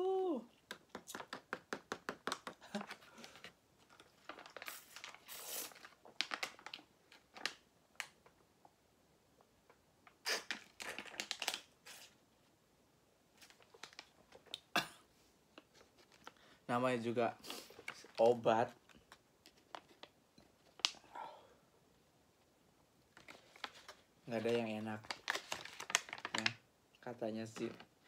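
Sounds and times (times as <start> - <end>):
plastic pouch crinkling: 2.4 - 8.2, 10.3 - 12.2, 13.4 - 14.6, 17.6 - 21.0, 23.1 - 26.6.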